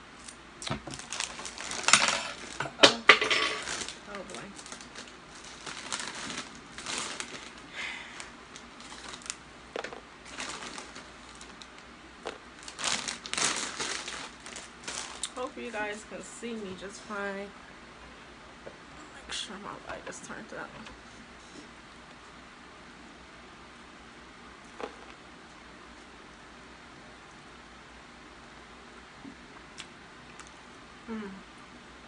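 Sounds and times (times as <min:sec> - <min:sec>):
snack bag crinkling rustle: 0:00.2 - 0:02.8, 0:03.5 - 0:15.5
soft mouth noises: 0:29.2 - 0:31.7
pizza being chewed: 0:29.6 - 0:30.8.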